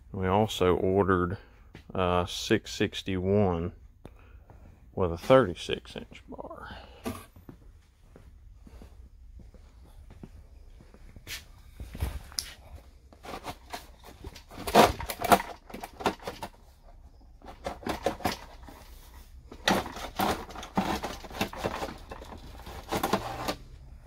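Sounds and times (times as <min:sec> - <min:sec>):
plastic cover clicking and rattling: 0:13.2 - 0:16.6, 0:17.4 - 0:18.9, 0:19.5 - 0:23.6.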